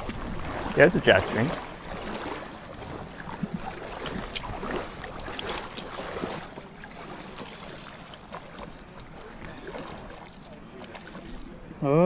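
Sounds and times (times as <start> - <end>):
wind on microphone: 0.0 - 5.6
river water splashing and lapping: 0.0 - 12.0.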